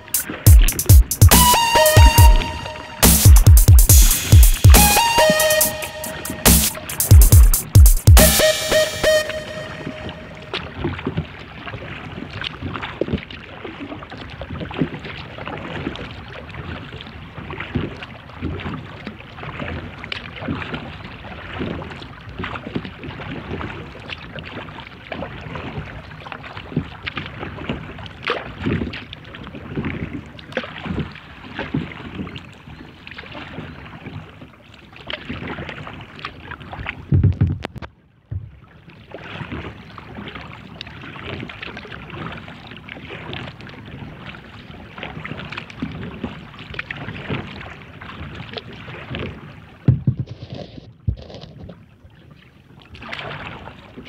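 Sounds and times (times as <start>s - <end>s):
paddle strokes splashing in water: 0.0s - 3.0s, 9.2s - 54.0s
thump: 37.1s - 38.6s, 49.9s - 51.2s.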